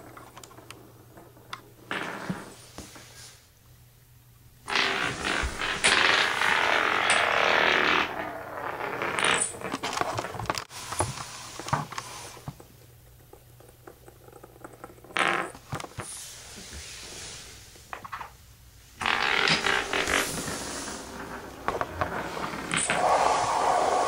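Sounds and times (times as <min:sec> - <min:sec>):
spinning top whirring on floor: 0:04.7 - 0:10.3, 0:19.0 - 0:24.0.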